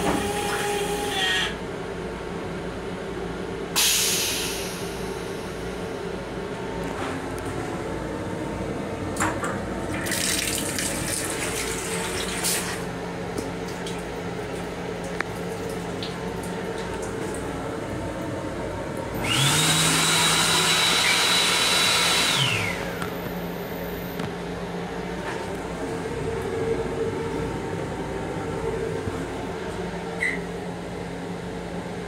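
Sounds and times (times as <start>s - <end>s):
hand dryer blower whine: 0.0s - 1.6s, 19.2s - 23.3s
train hum: 0.0s - 10.0s, 10.8s - 21.6s, 22.3s - 32.0s
faucet water splashing into sink: 10.0s - 12.6s.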